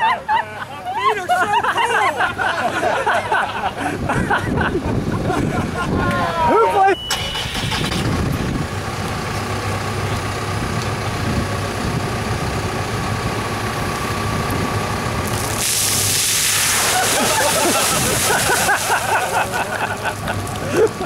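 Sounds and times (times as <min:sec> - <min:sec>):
diesel engine idling: 0:01.6 - 0:16.2, 0:17.4 - 0:21.0
water splashing onto pavement: 0:15.2 - 0:21.0.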